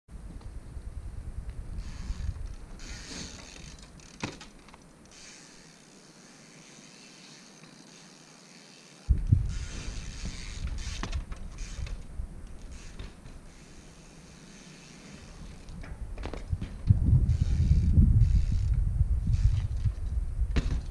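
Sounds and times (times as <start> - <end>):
wind rumbling on microphone: 0.1 - 3.8, 9.1 - 13.5, 15.2 - 20.9
bike knocks and clicks: 1.8 - 4.9, 9.1 - 13.4, 15.5 - 18.6, 19.4 - 20.9.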